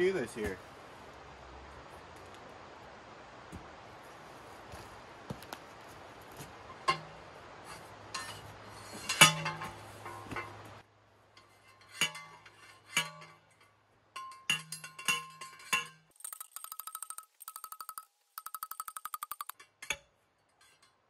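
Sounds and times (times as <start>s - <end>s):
post pounder clanking on metal rod: 6.7s - 7.2s, 8.1s - 10.7s, 11.4s - 21.0s.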